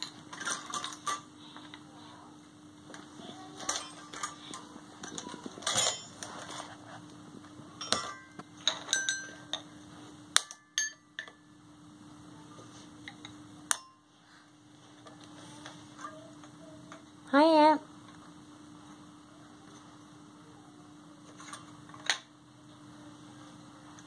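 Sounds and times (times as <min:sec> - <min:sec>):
toy handling knocks and clatter: 0:00.0 - 0:01.8, 0:02.9 - 0:06.8.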